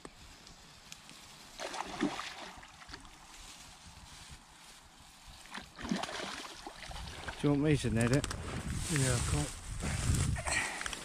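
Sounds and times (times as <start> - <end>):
fish splashing at water surface: 1.6 - 3.2, 5.5 - 7.4.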